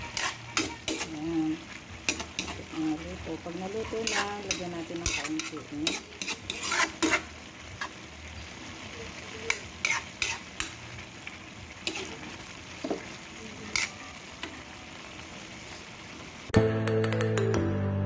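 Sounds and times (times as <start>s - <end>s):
metal ladle scraping pan: 0.0s - 1.4s, 2.0s - 2.7s, 3.8s - 8.0s, 9.5s - 10.8s, 11.8s - 13.0s, 13.7s - 14.0s
music: 0.0s - 8.4s, 13.1s - 15.9s, 16.5s - 18.0s
frying sizzle: 0.0s - 16.6s.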